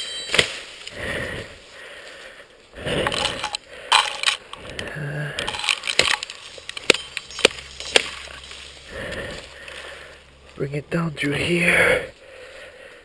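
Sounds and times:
brush rustling and crackling: 0.3 - 13.0
sticks snapping: 4.1 - 9.8.

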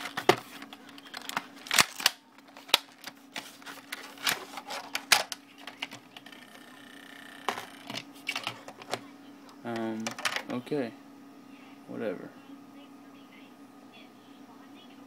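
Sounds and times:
plastic packaging clicking: 0.0 - 6.2.

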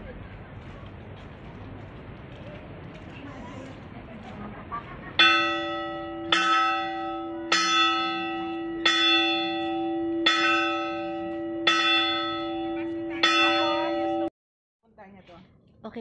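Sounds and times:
hand-rung bell strikes: 5.2 - 14.3.

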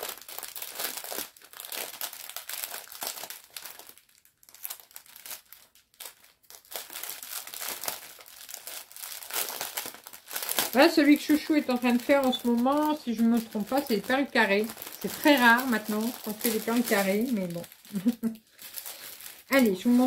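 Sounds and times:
plastic packaging crinkling: 0.0 - 20.0.

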